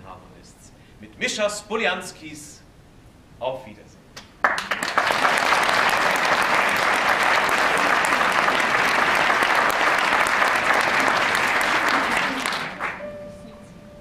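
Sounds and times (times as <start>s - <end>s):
audience applauding: 4.4s - 13.1s.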